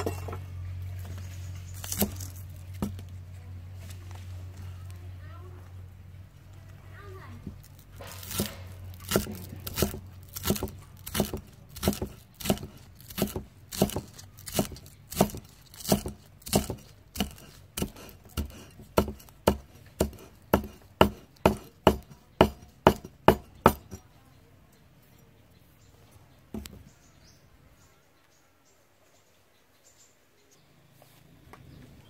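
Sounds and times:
cleaver chopping on wooden board: 0:01.8 - 0:03.0, 0:07.6 - 0:24.0.

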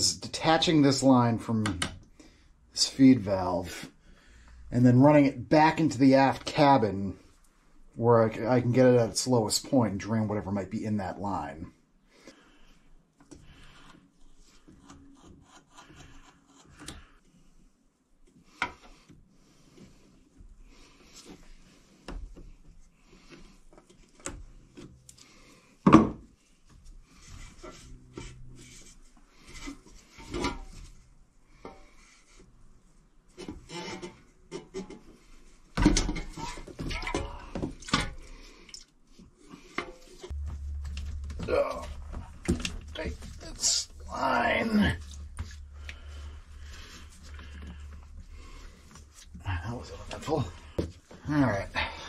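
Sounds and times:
low steady hum: 0:39.4 - 0:52.0.

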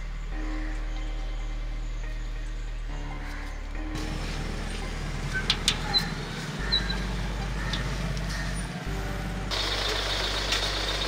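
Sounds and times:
vehicle engine idling: 0:03.6 - 0:11.0.

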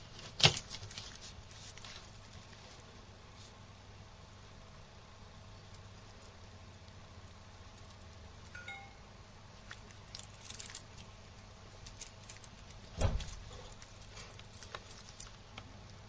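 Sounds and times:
low steady hum: 0:00.0 - 0:16.0
thump: 0:13.0 - 0:13.3.

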